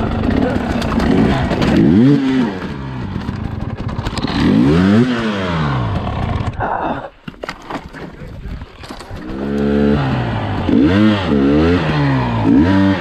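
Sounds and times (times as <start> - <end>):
dirt bike engine revving: 0.0 - 6.6, 9.2 - 13.0.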